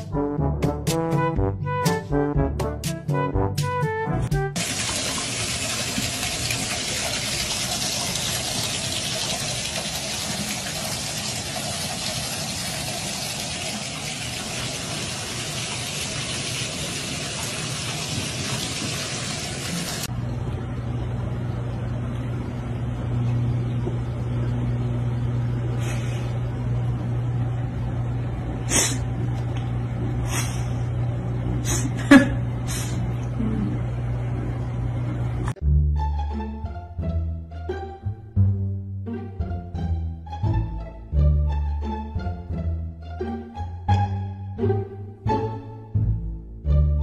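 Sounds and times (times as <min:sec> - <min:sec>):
water pouring from faucet: 0:04.6 - 0:20.1
steady low hum: 0:20.0 - 0:35.6.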